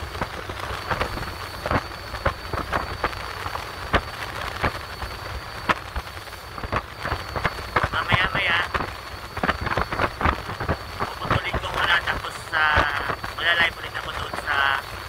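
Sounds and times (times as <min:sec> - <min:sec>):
faint high whine: 0:00.0 - 0:15.0.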